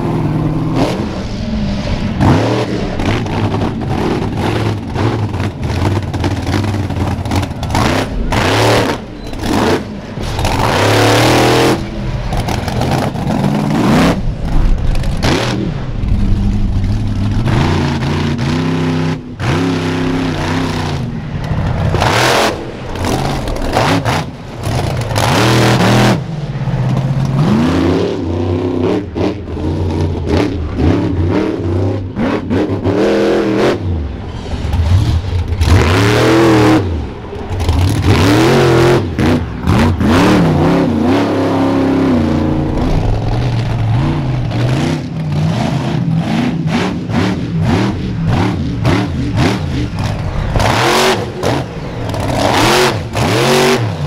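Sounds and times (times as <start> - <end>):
monster truck engines revving: 0.0 - 54.0.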